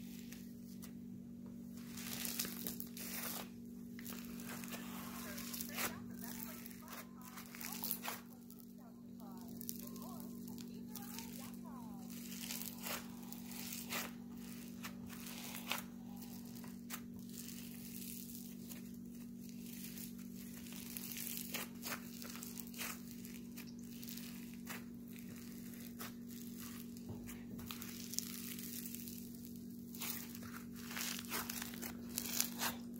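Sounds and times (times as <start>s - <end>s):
foam slime crackling and squishing: 0.0s - 1.0s, 1.6s - 32.9s.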